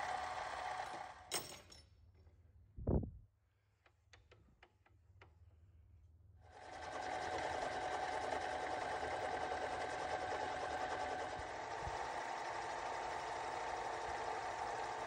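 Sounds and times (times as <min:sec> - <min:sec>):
metal lathe whining: 0:07.0 - 0:15.0.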